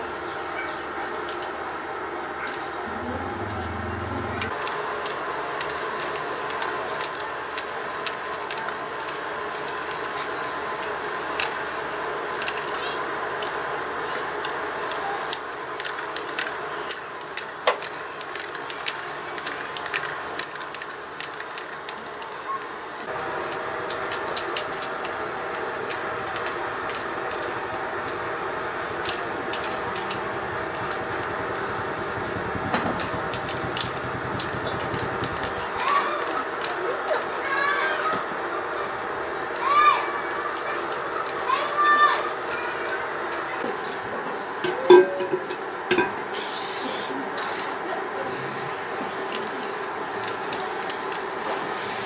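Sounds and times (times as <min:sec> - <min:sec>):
aerosol spray can hissing: 0:04.5 - 0:12.1, 0:22.8 - 0:37.4, 0:46.3 - 0:52.0.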